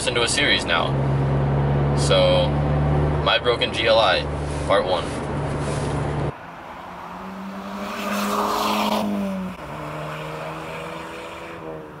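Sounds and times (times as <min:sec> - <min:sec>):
car driving past: 0:05.6 - 0:12.0.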